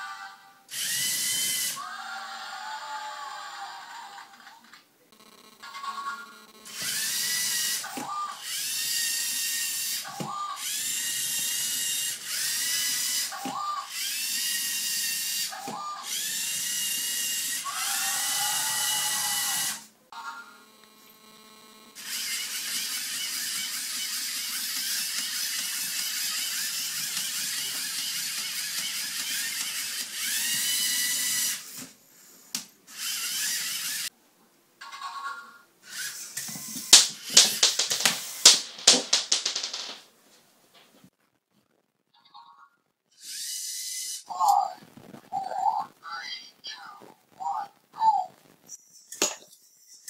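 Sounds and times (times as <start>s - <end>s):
electric motors whining: 5.2s - 34.1s.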